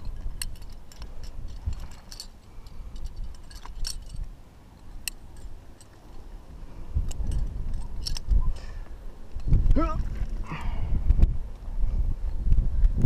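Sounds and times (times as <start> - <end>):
carabiners clicking and clinking: 0.0 - 8.6.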